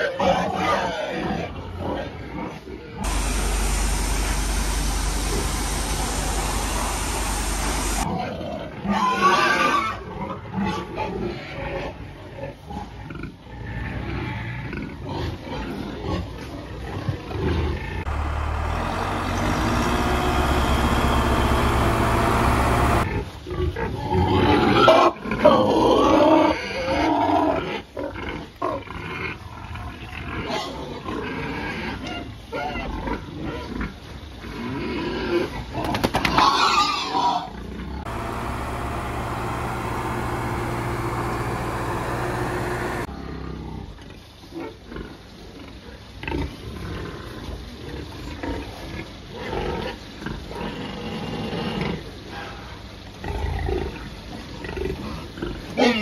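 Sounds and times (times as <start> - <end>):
pigs squealing and grunting: 0.0 - 2.1, 8.1 - 15.7, 24.3 - 27.8.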